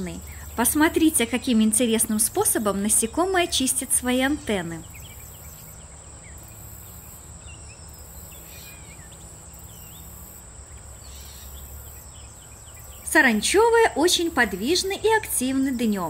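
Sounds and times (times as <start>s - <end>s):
insect trilling: 0.0s - 16.0s
faint bird chirps: 4.3s - 13.5s.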